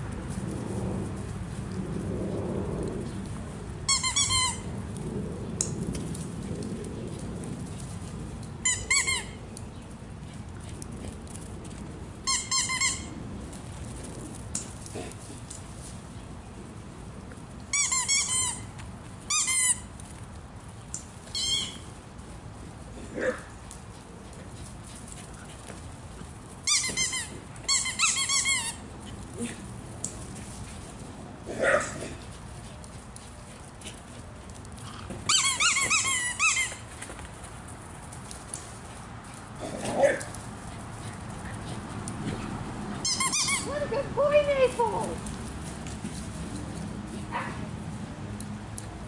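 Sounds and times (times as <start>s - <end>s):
squeaky toy squeaks: 3.9s - 4.6s, 8.6s - 9.3s, 12.3s - 13.1s, 17.7s - 18.7s, 19.3s - 19.8s, 21.4s - 21.8s, 26.7s - 28.8s, 35.3s - 36.8s, 43.0s - 43.7s.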